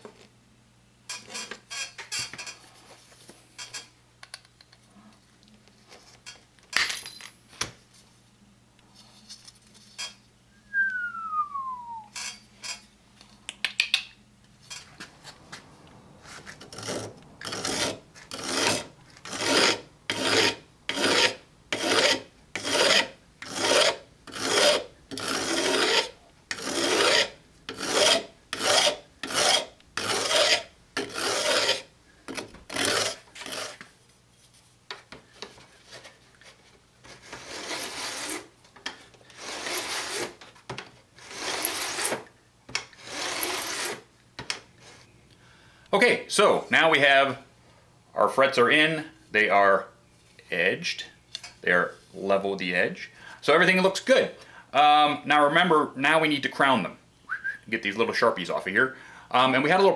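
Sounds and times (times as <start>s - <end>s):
metal file rasping on metal: 16.7s - 31.9s, 32.7s - 33.8s, 37.1s - 38.5s, 39.3s - 40.4s, 41.2s - 42.2s, 43.0s - 44.0s.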